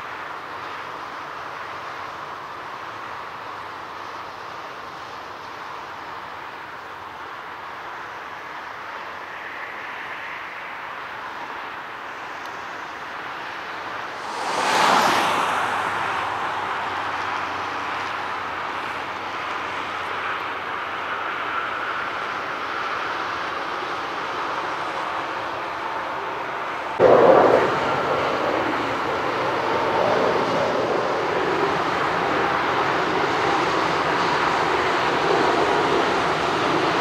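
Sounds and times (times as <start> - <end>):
jet engine rushing and whining: 11.3 - 37.0.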